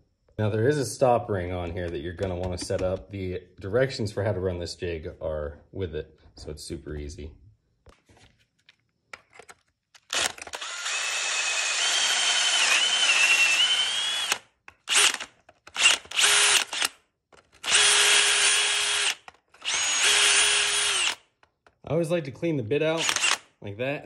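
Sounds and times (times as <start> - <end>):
cordless drill boring into wood: 10.1 - 17.0, 17.6 - 21.3, 23.0 - 23.5.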